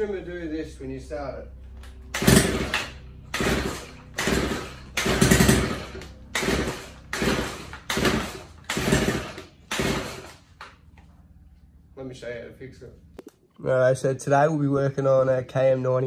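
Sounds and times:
engine pull-start bursts: 2.1s - 10.6s.

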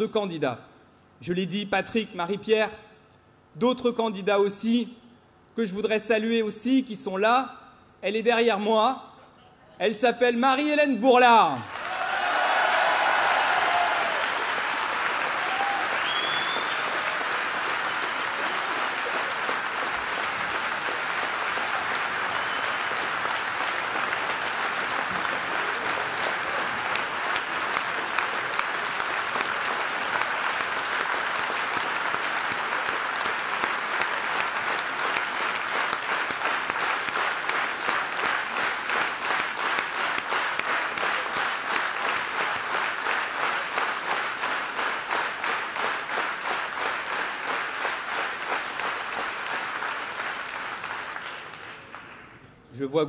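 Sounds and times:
large audience applauding: 11.5s - 52.5s.

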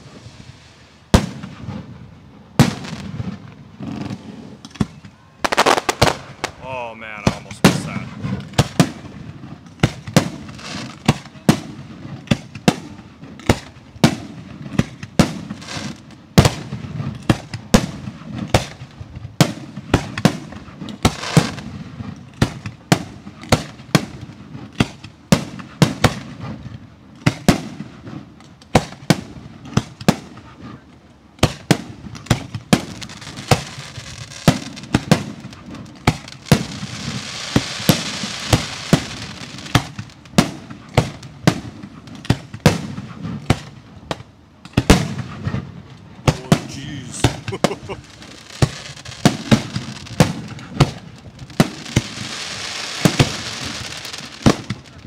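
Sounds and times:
fireworks hiss: 0.0s - 2.0s, 5.4s - 9.2s, 21.0s - 21.7s, 32.6s - 41.2s, 46.3s - 55.0s
fireworks bangs: 0.0s - 55.0s.

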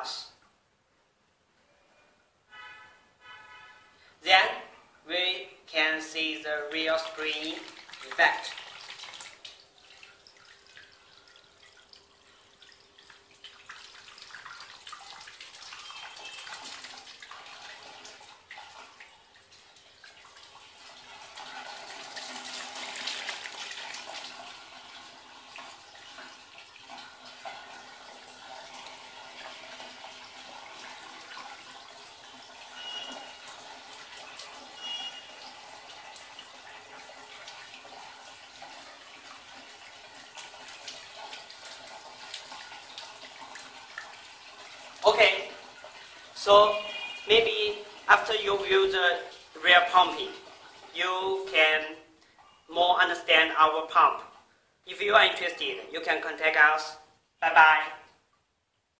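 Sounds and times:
water jet splashing: 6.4s - 52.0s.

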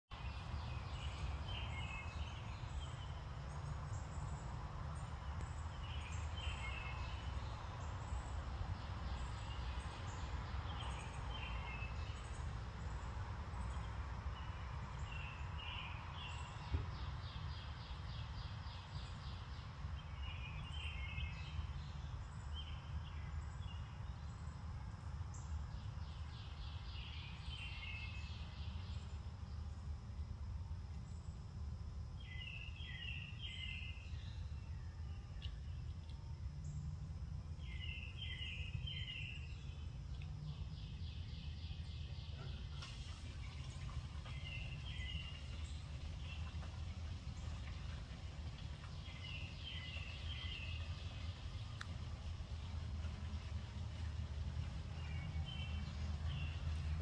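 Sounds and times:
low outdoor rumble: 0.1s - 57.0s
songbirds chirping: 0.1s - 57.0s
faint click: 51.8s - 52.0s.

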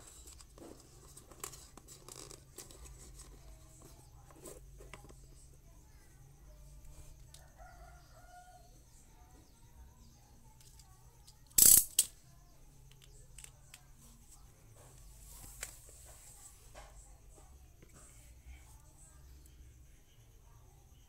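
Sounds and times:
distant rooster crowing: 7.3s - 9.0s.

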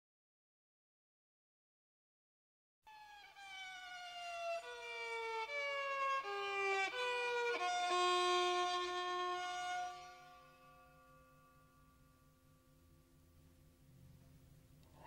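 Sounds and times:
string-like notes sliding down: 2.9s - 12.5s.

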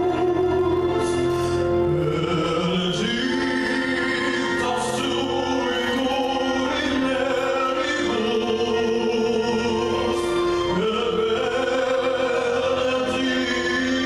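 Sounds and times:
man singing slow classical song: 0.0s - 14.0s
sustained accompaniment: 0.0s - 14.0s.

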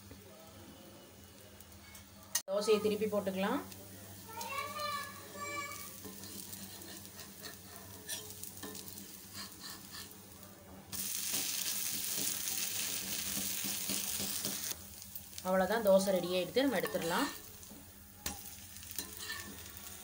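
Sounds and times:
loud steady sizzle: 0.0s - 20.0s
spatula scraping on griddle: 5.4s - 10.3s, 11.0s - 14.8s, 18.2s - 20.0s.

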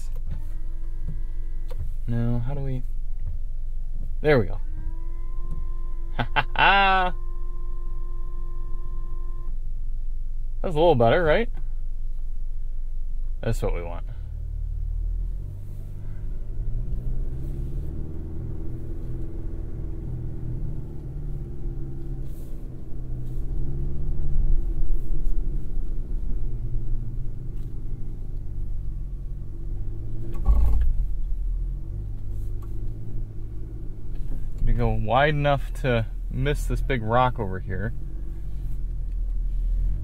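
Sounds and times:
truck engine low rumble: 0.0s - 40.0s.

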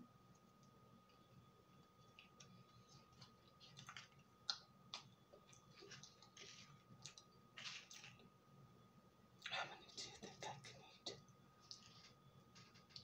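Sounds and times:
person chewing: 2.0s - 8.3s, 11.6s - 13.0s.

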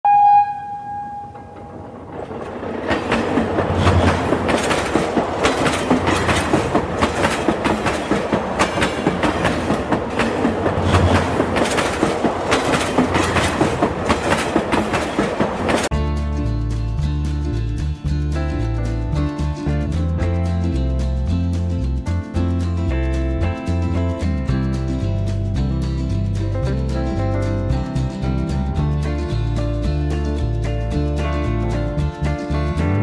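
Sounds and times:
train horn: 0.0s - 1.8s
train wheels clattering on rails: 1.3s - 15.9s.

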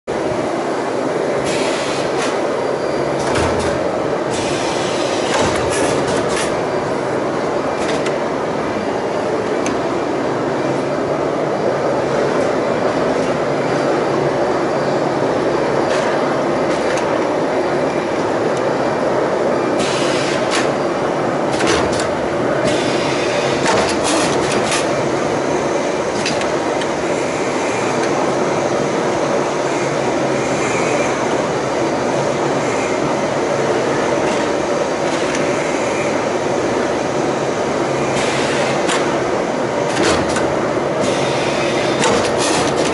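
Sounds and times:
machine running noise: 0.1s - 42.9s
sharp clacks of machine clamps: 21.5s - 22.9s, 23.6s - 24.9s, 39.9s - 41.2s, 41.8s - 42.9s.

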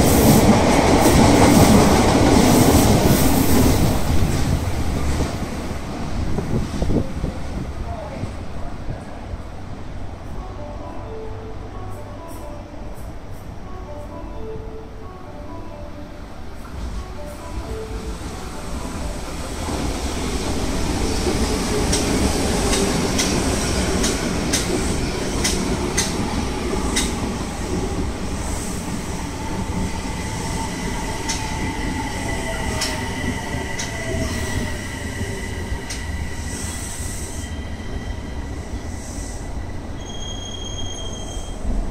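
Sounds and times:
subway train rumbling past: 0.0s - 41.9s
high steady wheel squeal: 32.5s - 41.8s.

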